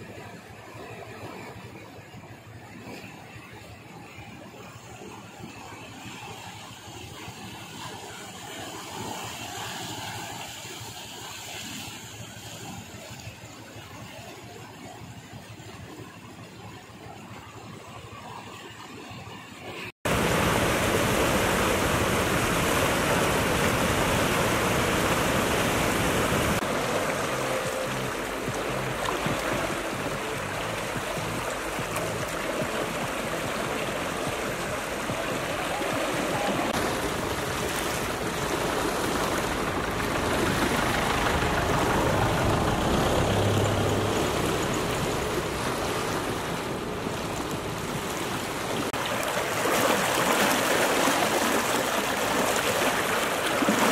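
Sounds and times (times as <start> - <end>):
floodwater rushing: 0.0 - 53.9.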